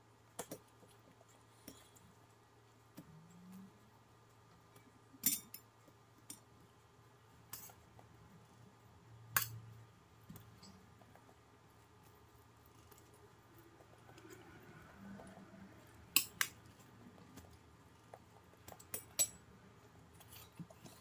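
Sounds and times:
metal spoon clinking on pot: 0:18.8 - 0:19.4.

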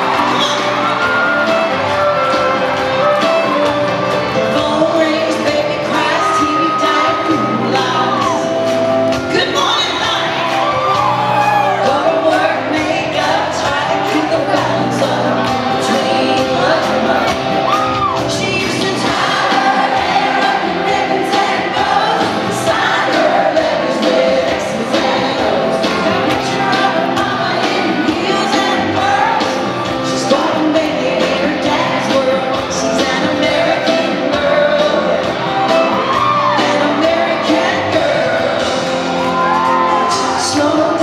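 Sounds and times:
crowd whooping and cheering: 0:00.0 - 0:41.0
live country band: 0:00.0 - 0:41.0
person singing: 0:00.0 - 0:41.0.

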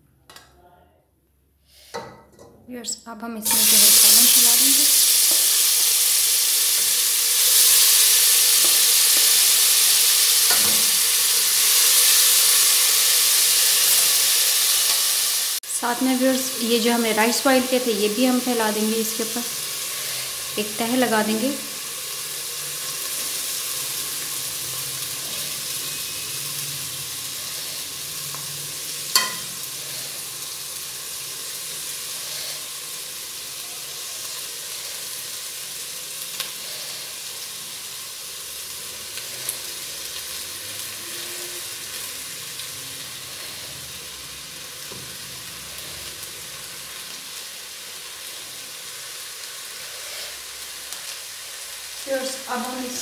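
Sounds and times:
gravy sizzling in a pot: 0:03.4 - 0:53.0
metal spatula clinking on pot: 0:29.1 - 0:29.6.

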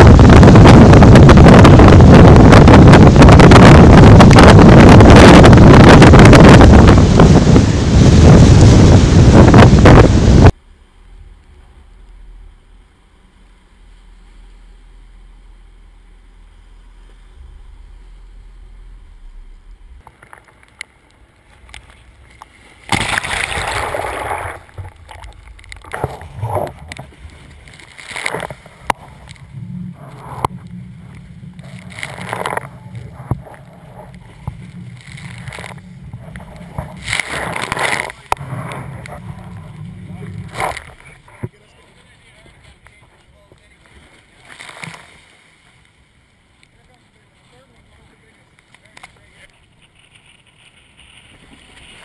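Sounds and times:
low rumble: 0:00.0 - 0:20.2, 0:23.2 - 0:43.0
waves sloshing and breaking: 0:00.0 - 0:52.0
loud water splashes: 0:22.7 - 0:29.5.

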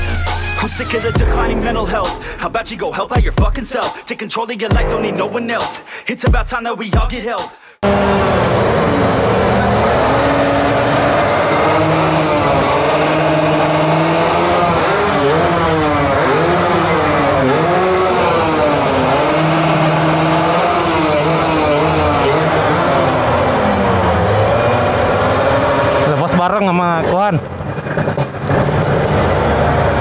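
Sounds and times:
motorcycle engines revving: 0:07.8 - 0:30.0.

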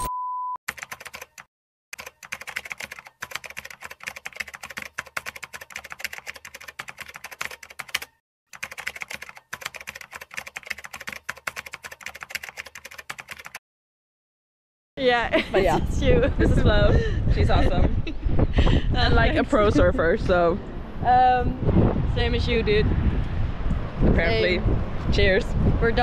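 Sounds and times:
short steady beep: 0:00.0 - 0:00.6.

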